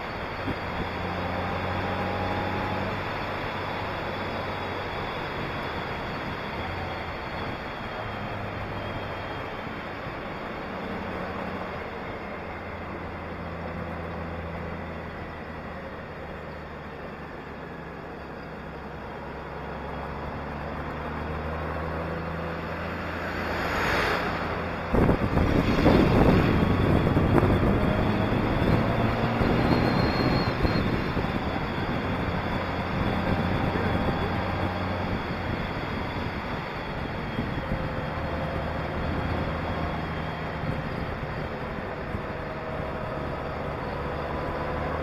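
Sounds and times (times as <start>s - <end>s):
wind buffeting microphone: 24.2s - 42.6s.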